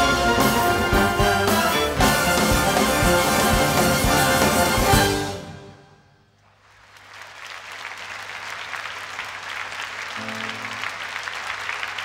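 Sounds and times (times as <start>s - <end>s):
music ringing in a hall: 0.0s - 7.6s, 9.0s - 12.0s
audience applauding: 6.5s - 12.0s.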